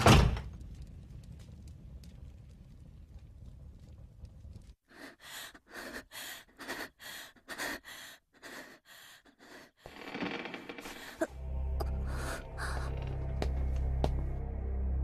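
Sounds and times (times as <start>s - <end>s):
woman breathing quickly and gasping: 4.8s - 9.9s, 10.8s - 13.0s.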